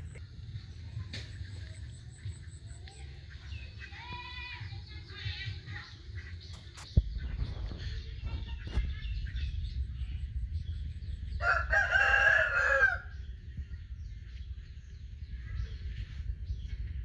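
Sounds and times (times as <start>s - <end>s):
rooster crowing: 11.4s - 13.1s.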